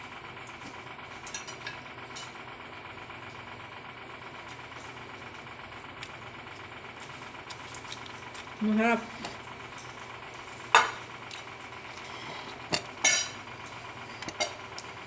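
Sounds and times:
mechanical hum: 0.0s - 15.0s
chewing leafy greens: 4.3s - 10.1s.

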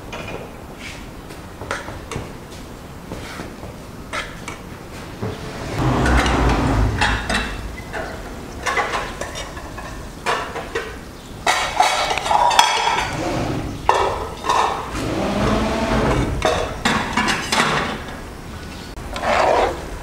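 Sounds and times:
metal skimmer scraping cooking pot: 5.0s - 9.8s, 11.8s - 16.8s.

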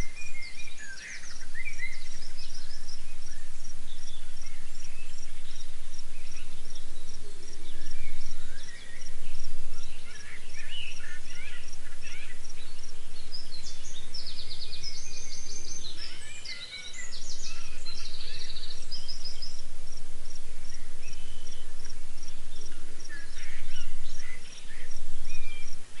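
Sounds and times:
birds chirping: 0.0s - 26.0s
insect chirping: 0.0s - 26.0s
steady low hum: 0.0s - 26.0s.

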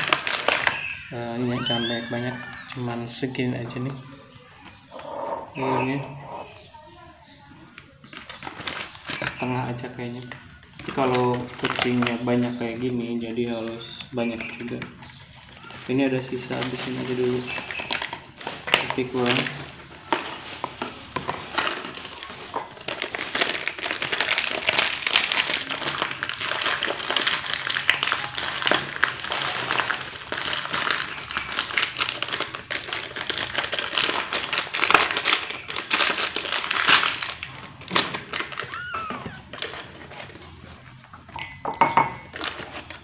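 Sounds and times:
foil pouch crinkling: 0.0s - 3.0s, 8.1s - 12.3s, 15.6s - 41.0s.

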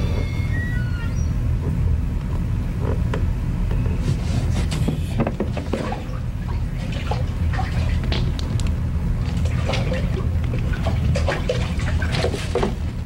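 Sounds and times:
steady low hum: 0.0s - 13.0s
hand splashing in aquarium water: 5.6s - 8.4s, 9.3s - 12.6s.

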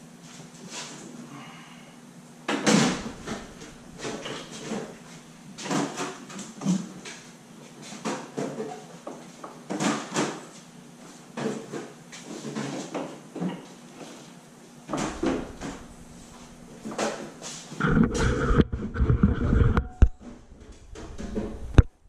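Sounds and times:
tailgate slamming shut: 2.6s - 3.6s
knocks and rattles: 2.6s - 5.0s, 14.9s - 22.0s.

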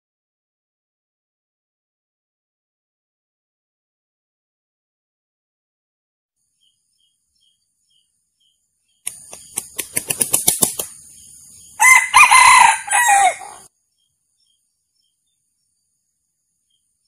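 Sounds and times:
rooster wings flapping: 9.1s - 11.0s
rooster crowing: 11.8s - 13.7s.

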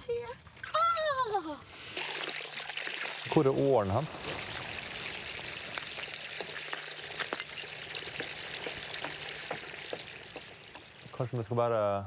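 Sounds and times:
water splashing onto stones: 0.5s - 11.8s
small crackles: 4.0s - 11.6s.

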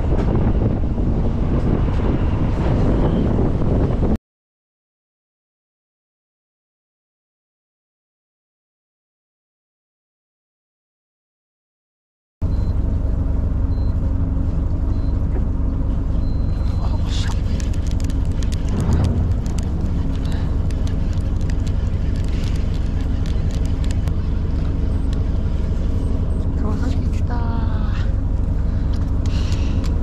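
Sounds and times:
boat engine droning: 0.0s - 4.1s, 12.4s - 30.0s
wind: 0.0s - 4.2s, 12.4s - 30.0s
water noise: 16.2s - 26.4s
light clicks and ticks: 17.1s - 25.3s.

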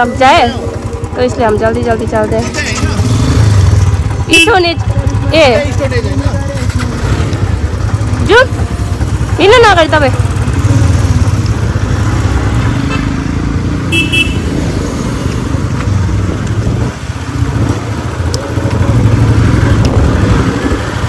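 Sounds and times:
motorcycle engine rumbling: 0.0s - 21.0s.

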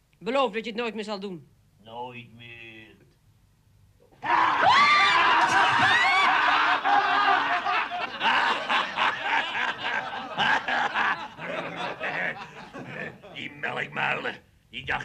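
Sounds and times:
people laughing: 5.1s - 13.8s.

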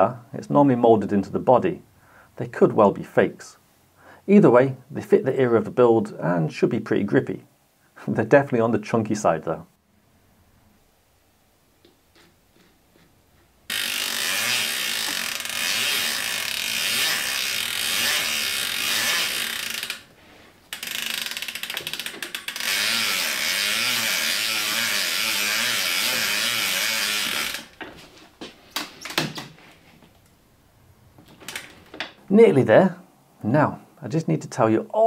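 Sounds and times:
bicycle freewheel ratchet clicking: 13.7s - 20.1s, 20.7s - 27.8s.

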